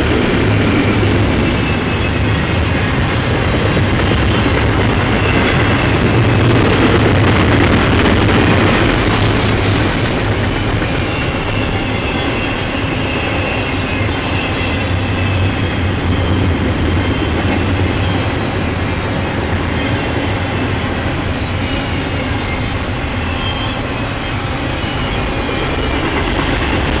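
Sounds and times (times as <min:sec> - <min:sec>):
train wheels rumbling on rail: 0:00.0 - 0:27.0
faint high wheel squeal: 0:01.2 - 0:04.0, 0:08.5 - 0:27.0.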